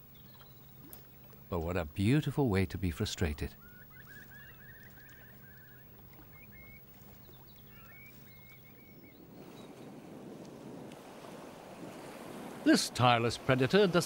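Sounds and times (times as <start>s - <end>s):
choppy water: 0.0s - 14.0s
wind: 0.0s - 14.0s
bird chirps and trills: 3.5s - 9.8s.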